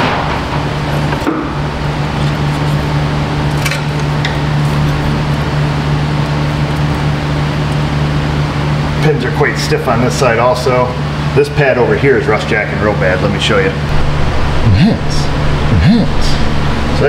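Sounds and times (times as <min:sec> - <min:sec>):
low mechanical hum: 0:00.0 - 0:17.0
rush of air: 0:13.9 - 0:17.0.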